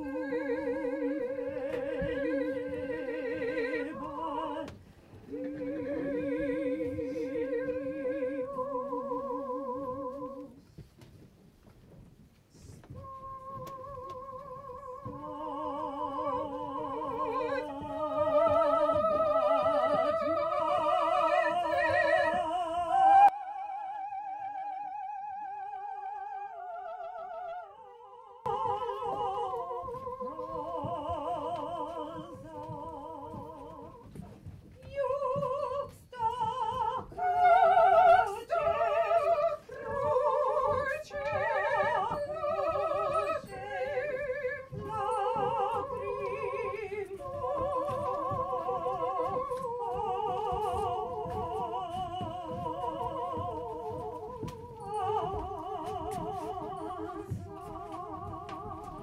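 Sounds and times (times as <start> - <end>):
classical singing voices with vibrato: 0.0 - 10.8, 12.5 - 59.0.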